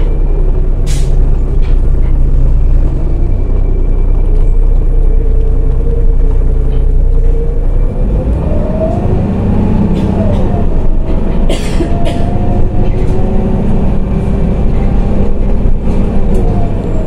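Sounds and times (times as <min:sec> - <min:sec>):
bus engine and road rumble: 0:00.0 - 0:17.0
brief air hiss: 0:00.8 - 0:01.2.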